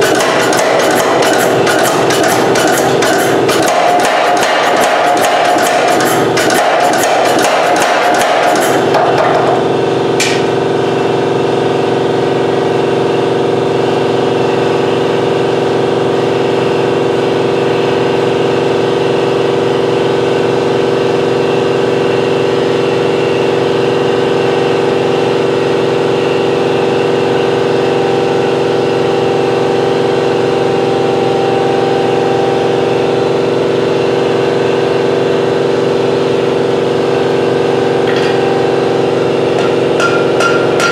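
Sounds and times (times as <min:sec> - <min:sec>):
pneumatic power hammer blows: 0:00.0 - 0:10.7, 0:37.2 - 0:40.9
air compressor humming: 0:00.0 - 0:40.9.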